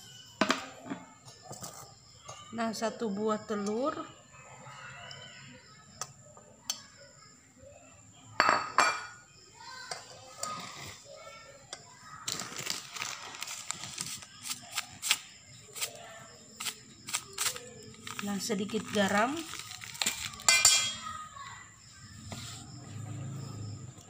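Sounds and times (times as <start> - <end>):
utensils clinking on metal pan: 8.4 - 9.2, 17.1 - 21.2.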